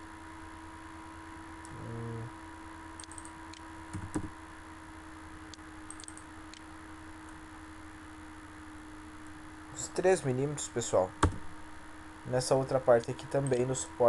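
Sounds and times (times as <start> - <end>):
low electrical hum: 0.0 - 14.0
short low tone: 1.7 - 2.3.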